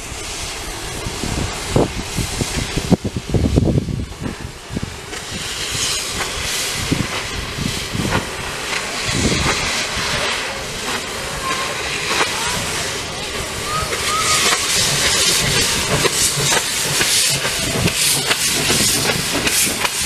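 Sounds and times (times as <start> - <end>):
steam hissing: 0.0 - 20.0
steam locomotive exhaust chuffs: 0.0 - 20.0.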